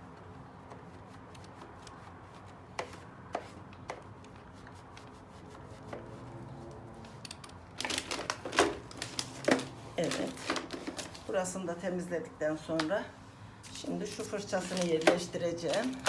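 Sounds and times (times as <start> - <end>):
paper crinkling: 7.7 - 11.3, 13.8 - 16.0.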